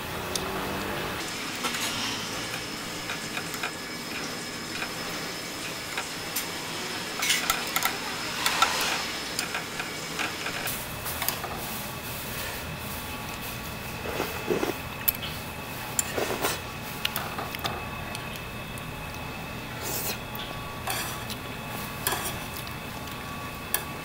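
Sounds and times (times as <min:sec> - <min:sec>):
chopsticks and ladle scraping pot: 0:20.8 - 0:21.4, 0:22.0 - 0:22.6.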